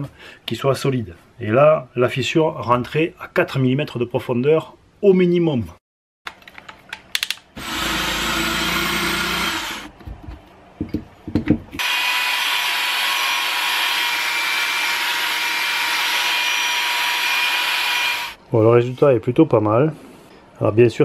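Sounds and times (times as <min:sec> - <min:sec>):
power tool running: 0:07.6 - 0:09.9, 0:11.8 - 0:18.4
angle grinder polishing metal: 0:11.8 - 0:18.4.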